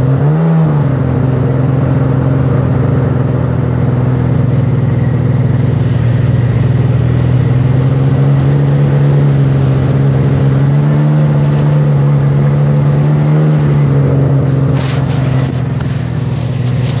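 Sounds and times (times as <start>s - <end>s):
watercraft engine running: 1.0s - 17.0s
short sharp noises: 14.5s - 17.0s.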